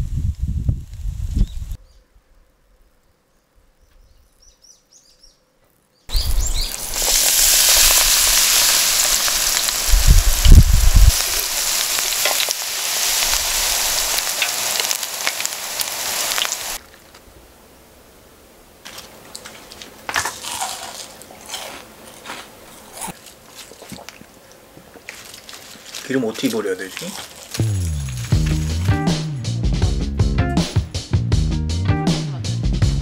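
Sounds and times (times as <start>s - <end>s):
food deep-frying in hot oil: 6.1s - 16.8s.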